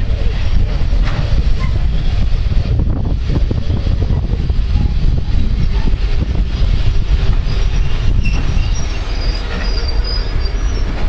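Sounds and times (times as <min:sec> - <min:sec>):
train rumbling into station: 0:00.0 - 0:11.0
high wheel squeals: 0:06.4 - 0:11.0.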